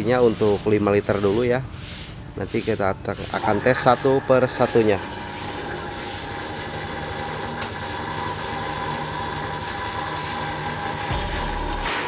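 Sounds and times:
electric pump humming: 3.4s - 12.0s.

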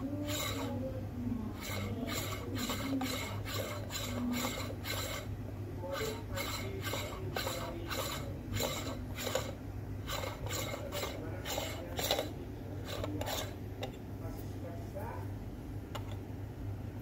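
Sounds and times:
metal tool scraping in basket: 1.6s - 5.3s, 5.9s - 12.3s, 12.9s - 13.6s.

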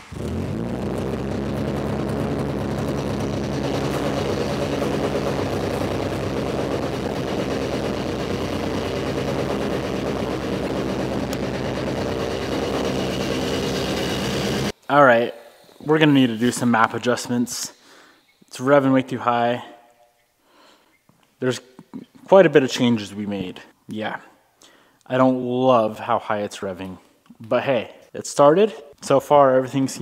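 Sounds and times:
car engine starting and idling high: 0.0s - 14.7s.

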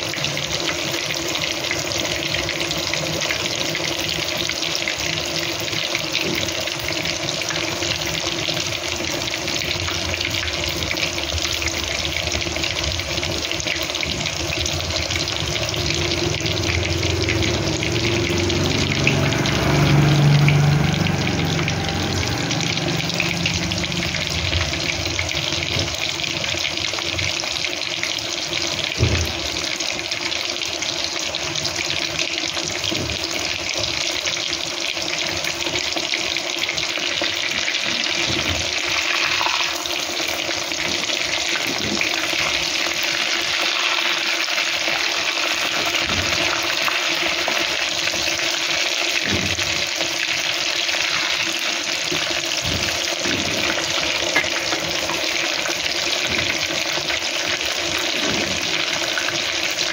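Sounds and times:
food sizzling in oil: 0.0s - 59.9s
low hum: 15.5s - 25.7s.

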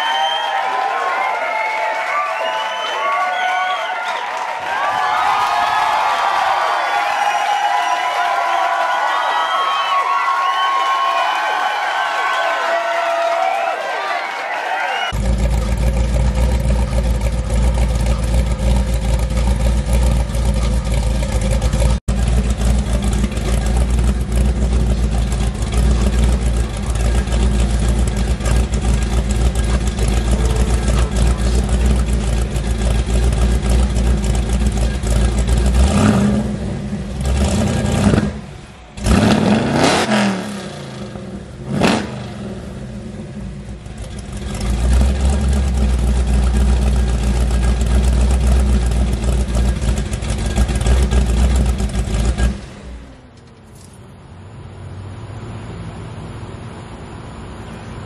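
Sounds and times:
car engine idling and revving: 15.1s - 58.0s.

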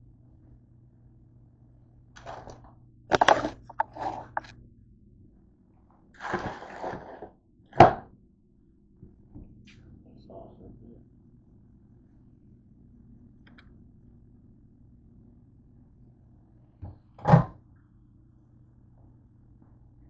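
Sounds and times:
rustling scrape: 2.2s - 4.5s, 6.2s - 7.3s.

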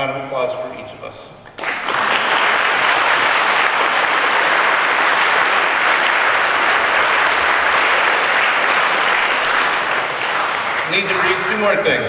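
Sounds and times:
audience applauding: 1.5s - 12.0s.

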